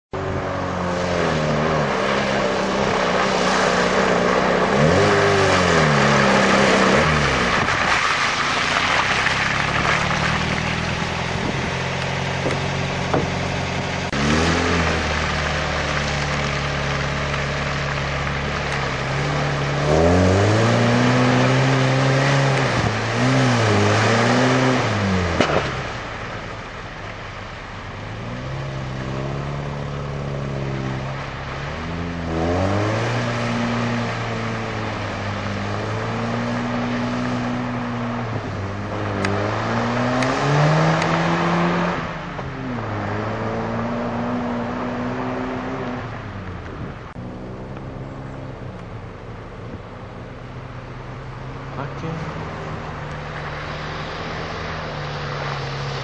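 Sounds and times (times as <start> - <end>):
truck engine revving: 0.2 - 26.2, 28.2 - 56.0
tyres spinning in mud: 1.5 - 26.5.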